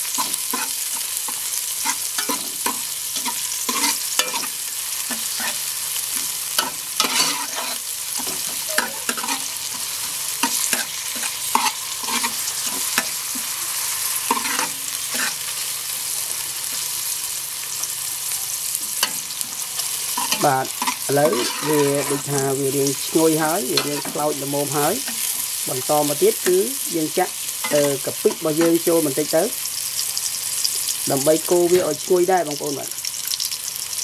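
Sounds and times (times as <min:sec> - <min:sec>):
metal spatula scraping pan: 0:00.0 - 0:15.7, 0:18.9 - 0:26.6
garlic sizzling in hot oil: 0:00.0 - 0:34.0.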